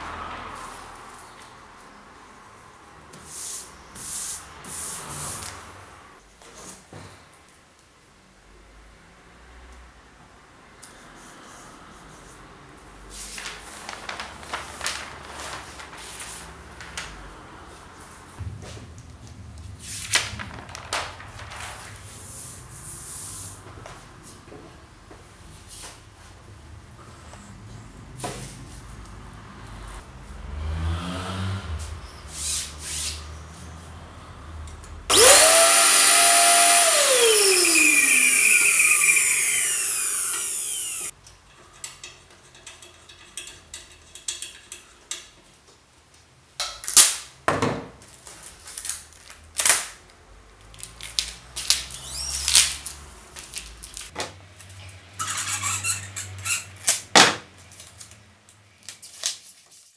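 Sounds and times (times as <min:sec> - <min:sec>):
power drill running: 0:35.1 - 0:41.1.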